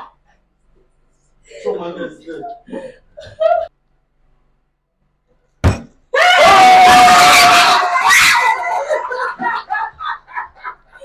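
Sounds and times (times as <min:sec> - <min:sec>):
people screaming and cheering: 0:06.2 - 0:09.4.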